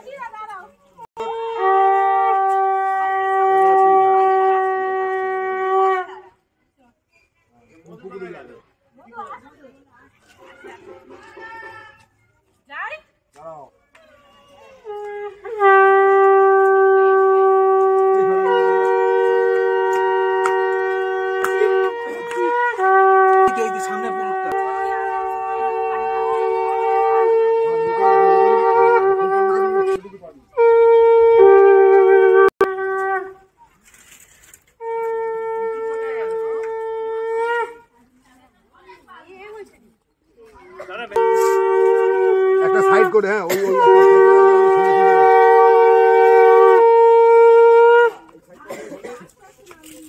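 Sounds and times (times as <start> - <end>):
conch shell blasts: 1.2 - 6.2, 14.9 - 30.0, 30.6 - 33.5, 34.8 - 37.8, 41.2 - 48.2.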